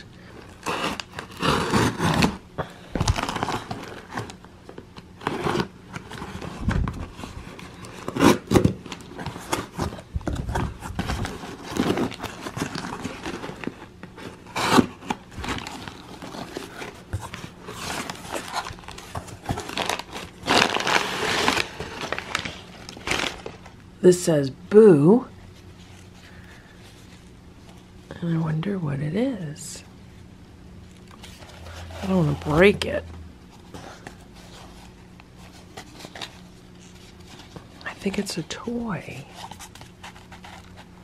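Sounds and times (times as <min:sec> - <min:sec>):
paper packing rustling: 0:00.0 - 0:23.8, 0:31.0 - 0:32.8, 0:33.5 - 0:41.0
box cutter slicing tape: 0:00.6 - 0:02.4, 0:08.0 - 0:08.8.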